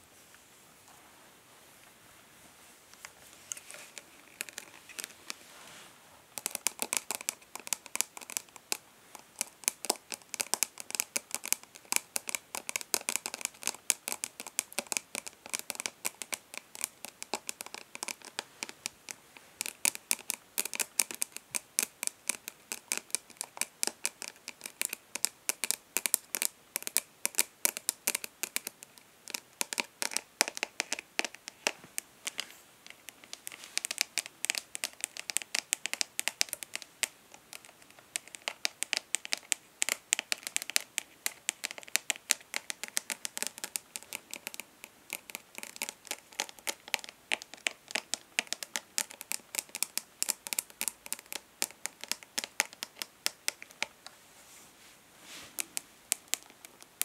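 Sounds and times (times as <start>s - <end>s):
light scratches: 1.7s - 7.4s.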